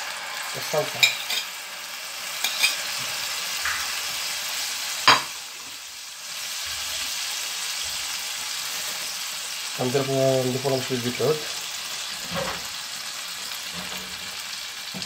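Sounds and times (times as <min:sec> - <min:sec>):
tomato sizzling in hot oil: 0:00.0 - 0:15.0.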